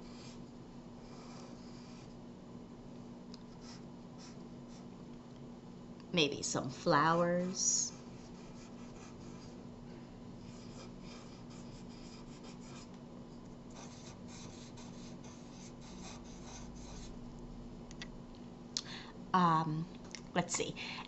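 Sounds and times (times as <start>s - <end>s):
marker scratching on paper: 10.4s - 12.9s, 13.7s - 17.2s.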